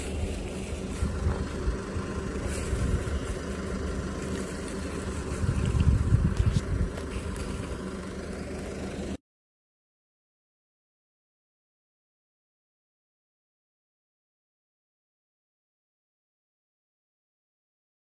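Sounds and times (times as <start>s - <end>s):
wind rumbling on microphone: 0.0s - 7.9s
low engine hum: 0.0s - 9.2s.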